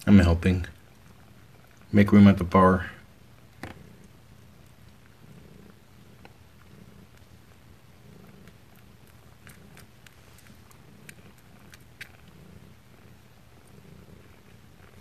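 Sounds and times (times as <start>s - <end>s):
cats purring: 0.0s - 15.0s
faint clicks: 3.4s - 12.4s.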